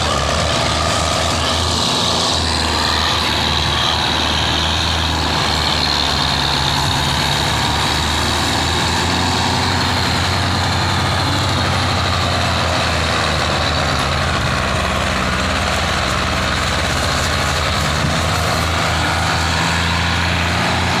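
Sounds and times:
tractor diesel engines straining: 0.0 - 21.0.

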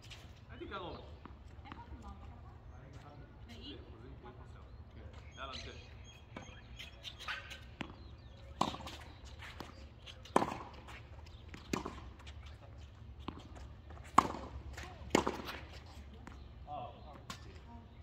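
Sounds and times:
tennis ball bouncing on court: 6.2 - 16.5
tennis ball struck by rackets: 7.2 - 16.5.

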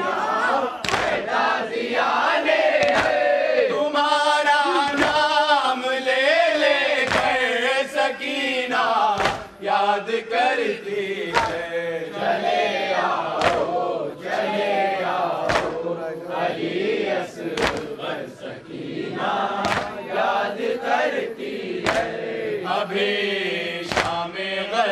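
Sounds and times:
men chanting in unison: 0.0 - 24.9
hands striking chests: 9.2 - 9.5, 15.5 - 15.8, 17.6 - 17.9, 19.6 - 20.0, 21.8 - 22.2, 23.9 - 24.2.

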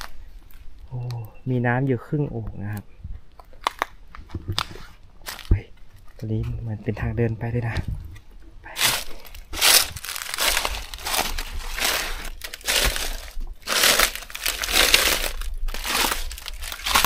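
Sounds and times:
footsteps on dry leaves: 8.8 - 17.0.

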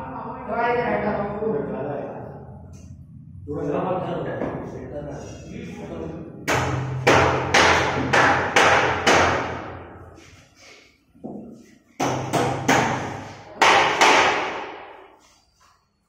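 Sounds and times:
hammer striking metal window frame: 6.4 - 9.8, 12.0 - 15.0.

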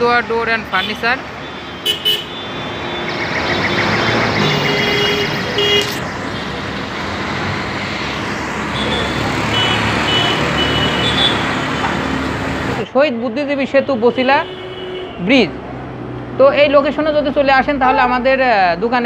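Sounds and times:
road traffic noise: 0.0 - 19.0
car horn beeps: 0.8 - 6.6, 8.7 - 11.8.

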